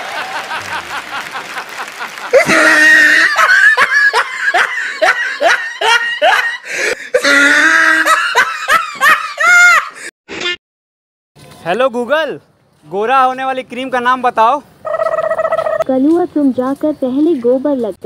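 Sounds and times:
women laughing: 0.0s - 10.1s.

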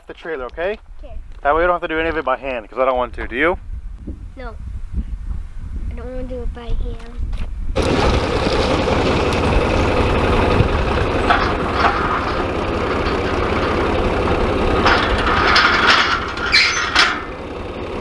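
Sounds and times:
metal clanks: 7.8s - 18.0s
tractor engine running: 7.8s - 18.0s.

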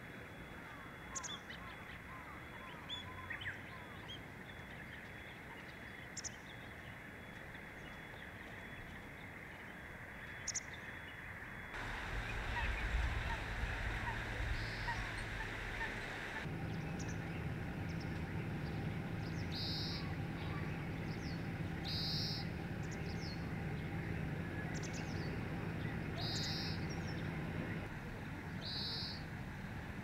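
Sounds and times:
bird twittering: 11.8s - 23.9s, 24.7s - 27.4s
bird buzzy song notes: 11.8s - 27.9s.

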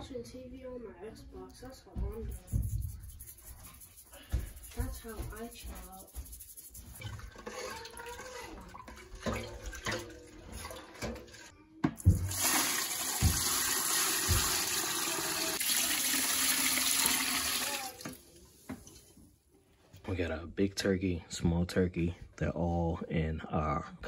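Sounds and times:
spoon stirring in a pot: 2.0s - 12.2s
liquid pouring and splashing: 5.7s - 19.2s.

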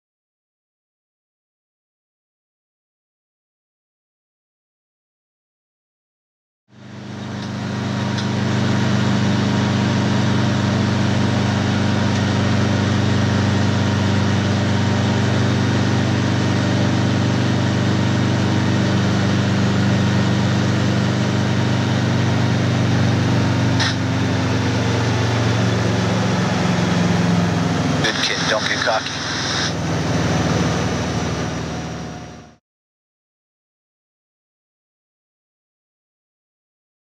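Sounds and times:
helicopter engine and rotor drone: 6.8s - 32.6s.

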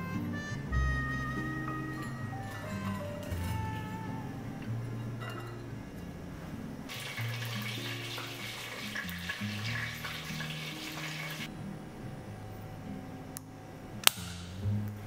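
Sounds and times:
soft background music: 0.0s - 15.0s
kitchen hiss: 6.9s - 11.5s.

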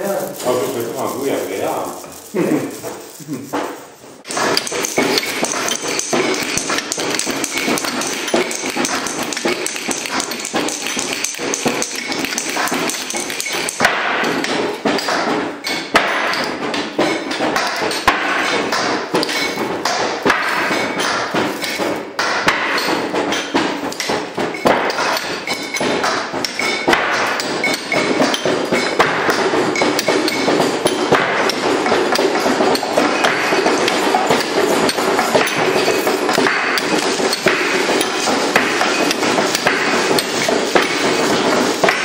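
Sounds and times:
tapping and knocking on objects: 0.0s - 42.0s
metallic pings: 22.7s - 31.6s.

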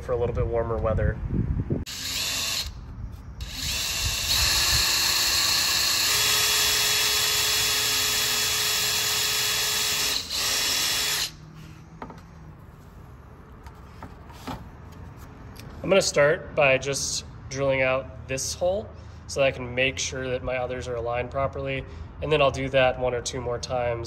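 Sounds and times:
cordless drill drilling plastic: 1.9s - 2.8s, 3.4s - 11.4s.

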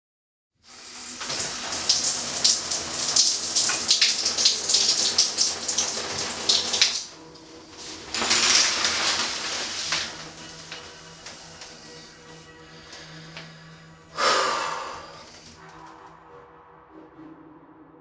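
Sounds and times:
shower water spraying: 0.6s - 15.7s.

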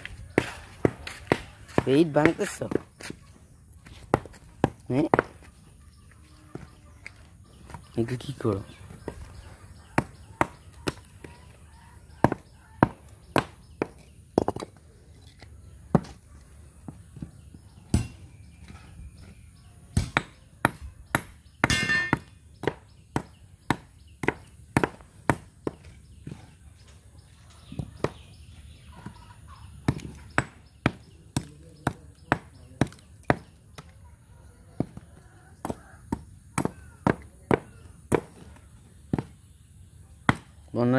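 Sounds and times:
rubble crunching: 0.0s - 19.7s.

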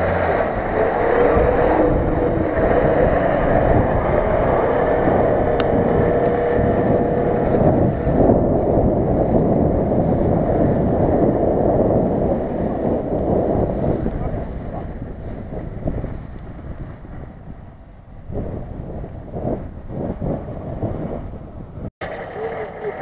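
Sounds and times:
vehicle engine driving through grass: 0.0s - 17.4s
wind rumble on microphone: 0.0s - 23.0s.

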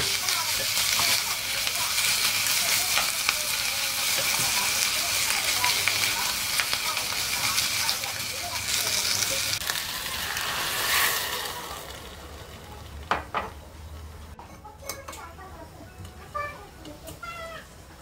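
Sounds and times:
seaweed sizzling in pot: 0.0s - 14.3s
water poured into hot pot: 9.5s - 13.0s.

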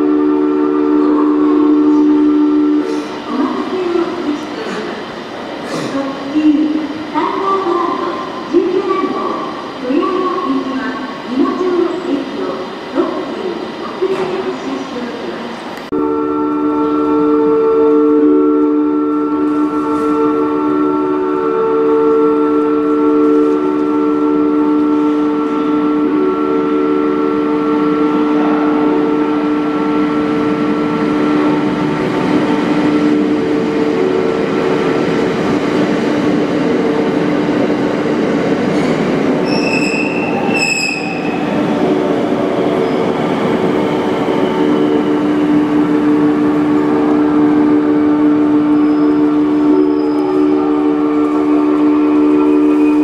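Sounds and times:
train rail and running noise: 0.0s - 53.0s
short high-pitched squeals: 39.4s - 41.4s, 48.7s - 50.7s.

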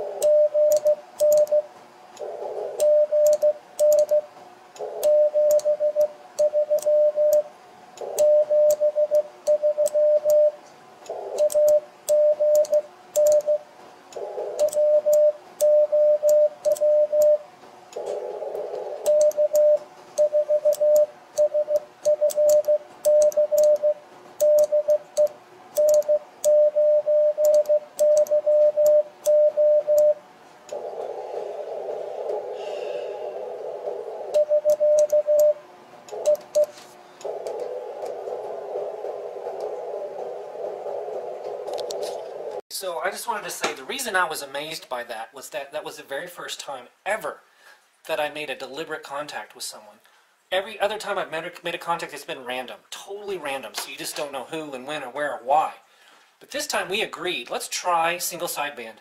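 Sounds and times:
receiver band noise hiss: 0.0s - 59.0s
morse code beeps: 0.2s - 1.7s, 2.8s - 4.3s, 5.0s - 7.5s, 8.1s - 10.6s, 11.4s - 13.6s, 14.6s - 17.5s, 19.1s - 30.2s, 34.4s - 36.8s.

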